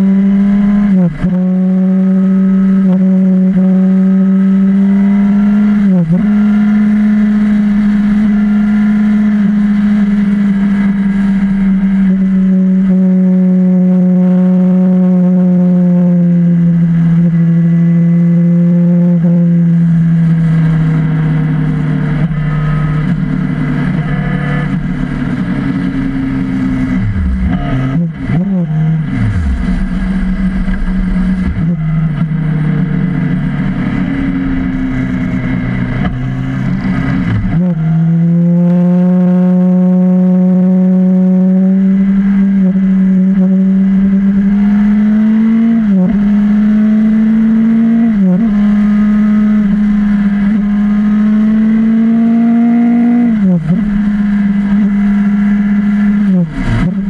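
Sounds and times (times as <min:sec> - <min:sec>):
motorcycle engine running: 0:00.0 - 0:57.0
wind rushing noise: 0:24.7 - 0:37.6.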